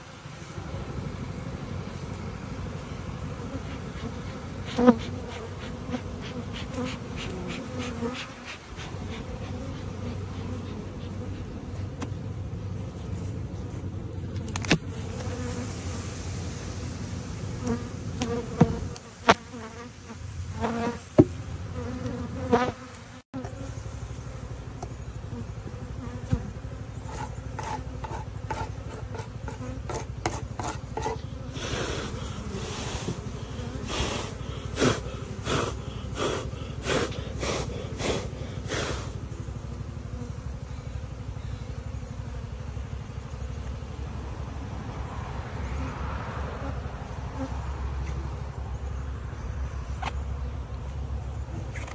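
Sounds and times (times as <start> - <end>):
bees buzzing: 0.0 - 51.9.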